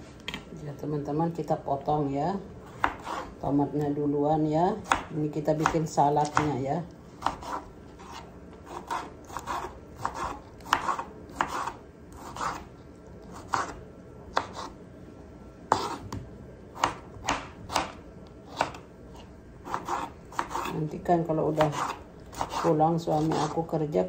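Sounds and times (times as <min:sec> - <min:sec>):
knife chopping on wooden board: 0:02.8 - 0:03.3, 0:04.8 - 0:06.6, 0:07.2 - 0:12.6, 0:13.4 - 0:13.8, 0:14.4 - 0:14.7, 0:15.7 - 0:16.2, 0:16.8 - 0:18.8, 0:19.7 - 0:20.7, 0:21.5 - 0:23.6.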